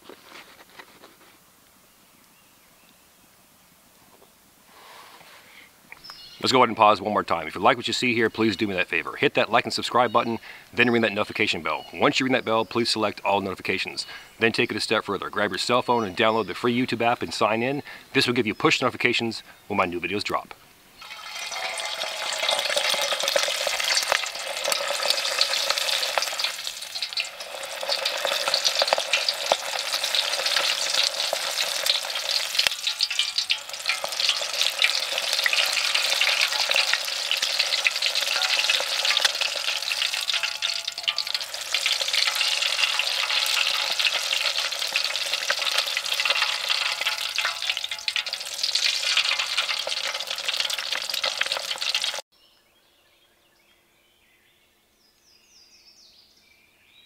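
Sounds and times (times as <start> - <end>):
food deep-frying in oil: 21.0 - 52.3.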